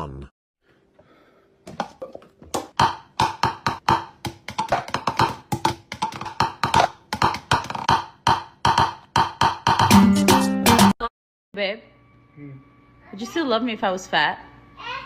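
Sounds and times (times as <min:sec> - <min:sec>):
fast percussive clicks and knocks: 0:02.6 - 0:10.1.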